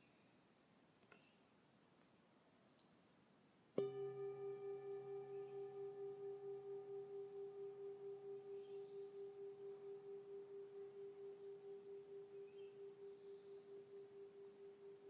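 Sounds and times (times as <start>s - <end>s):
singing bowl ringing: 3.8s - 15.0s.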